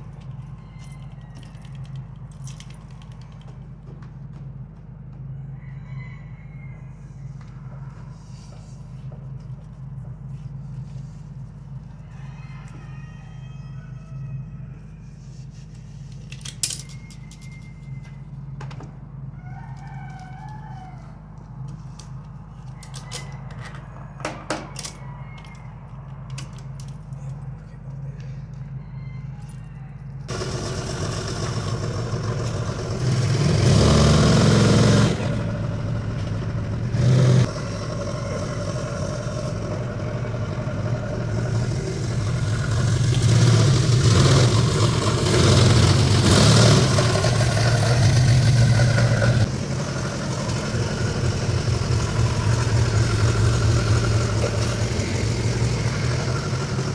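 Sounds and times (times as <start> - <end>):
forklift engine revving: 30.3 - 56.9.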